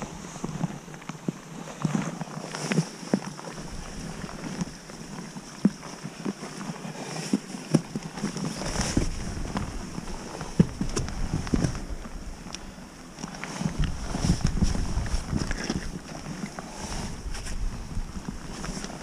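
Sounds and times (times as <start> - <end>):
wind buffeting microphone: 8.6 - 12.5, 13.6 - 19.0
low rumble: 8.7 - 12.6.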